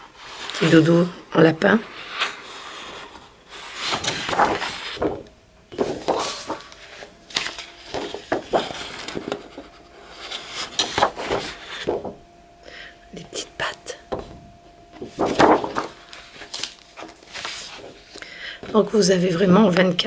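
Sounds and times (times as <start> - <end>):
paper rustling and shuffling: 1.9 - 12.2, 15.0 - 19.0.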